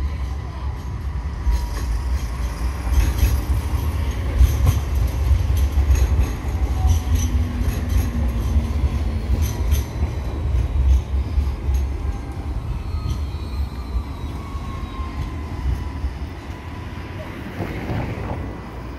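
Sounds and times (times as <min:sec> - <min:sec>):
tram rumbling past: 0:00.0 - 0:18.9
wheels clicking on track: 0:00.7 - 0:14.4.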